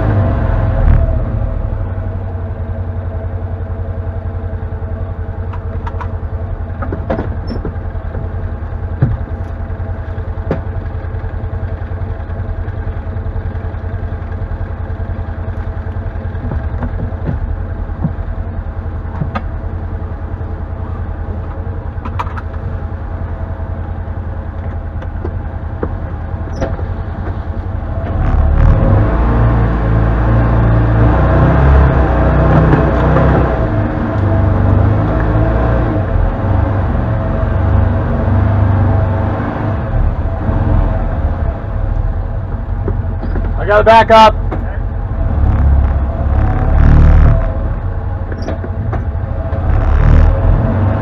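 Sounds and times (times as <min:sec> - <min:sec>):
engine running at low revs: 0:00.0 - 0:51.0
sharp knocks and rattles: 0:06.8 - 0:09.6, 0:10.2 - 0:11.9, 0:15.5 - 0:19.7, 0:22.0 - 0:22.6, 0:24.6 - 0:27.5, 0:42.4 - 0:43.6.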